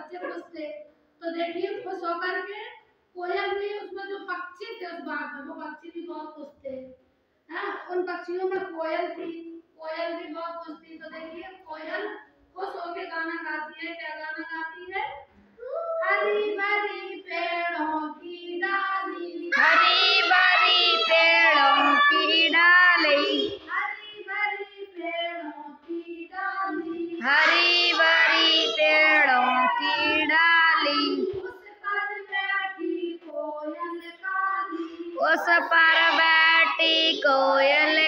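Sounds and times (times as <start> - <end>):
children and woman singing: 16.0 - 38.0.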